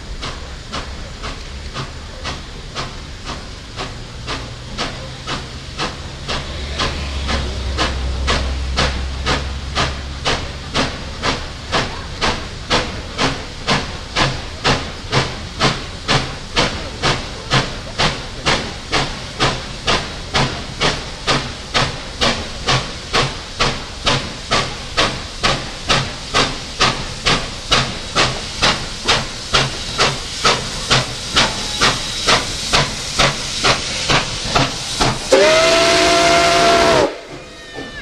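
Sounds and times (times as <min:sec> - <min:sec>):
rush of steam: 0:00.0 - 0:38.0
steam locomotive exhaust chuffing: 0:00.0 - 0:38.0
steam whistle blast: 0:35.3 - 0:38.0.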